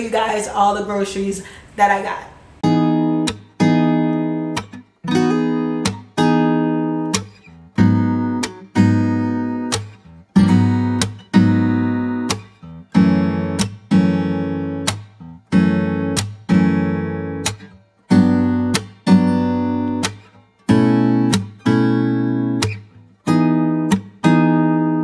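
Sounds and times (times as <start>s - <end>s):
acoustic guitar strumming chords: 2.6s - 25.0s.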